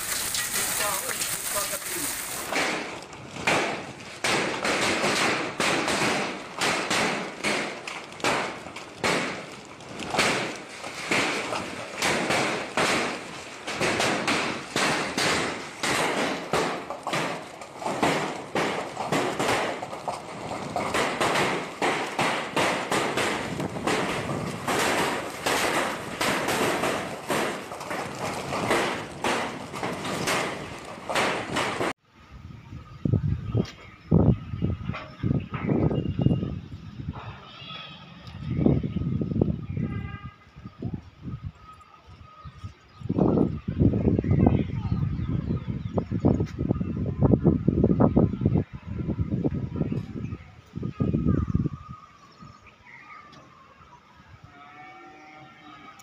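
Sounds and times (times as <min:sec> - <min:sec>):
hailstones pelting the ground: 0:00.0 - 0:32.0.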